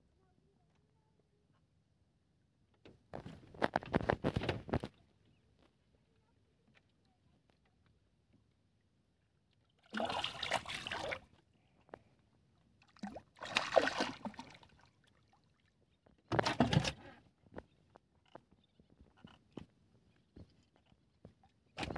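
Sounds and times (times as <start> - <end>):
water splashing beside boat: 9.6 - 11.3, 12.8 - 17.0.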